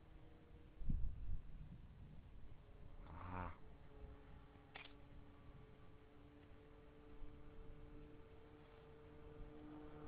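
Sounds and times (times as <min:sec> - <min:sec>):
faint two-tone hum: 0:00.0 - 0:10.0.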